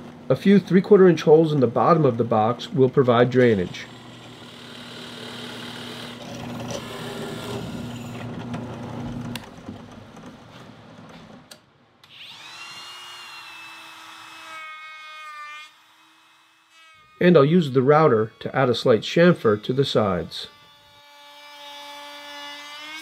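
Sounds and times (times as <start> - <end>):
drill press boring wood: 3.4 - 9.4, 12.0 - 14.4
router motor whine: 3.4 - 9.5, 12.0 - 14.3.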